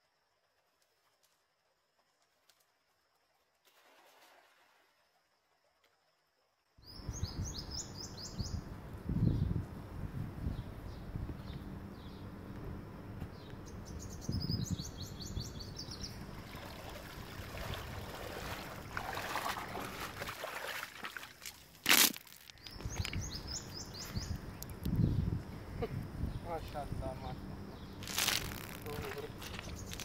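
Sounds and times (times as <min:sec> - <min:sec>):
small birds chirping in trills: 0:06.8 - 0:09.6, 0:10.4 - 0:12.4, 0:13.3 - 0:16.9, 0:22.5 - 0:30.0
low outdoor rumble: 0:08.4 - 0:20.3, 0:22.7 - 0:30.0
water sloshing around wading person: 0:16.2 - 0:22.6.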